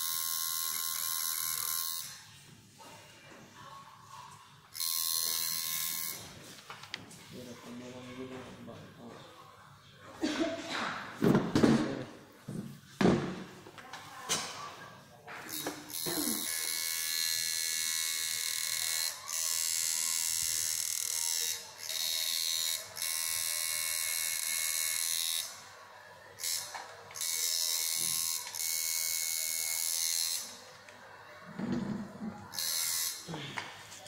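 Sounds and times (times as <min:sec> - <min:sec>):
tattoo machine buzzing: 0:00.0 - 0:02.3, 0:04.7 - 0:06.4, 0:15.5 - 0:25.7, 0:26.4 - 0:30.6, 0:32.5 - 0:33.3.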